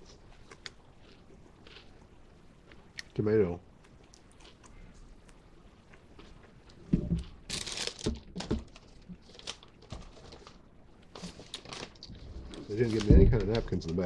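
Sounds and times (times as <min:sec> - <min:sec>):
paper bag rustling: 0:07.5 - 0:14.0
low thumps: 0:12.2 - 0:13.8.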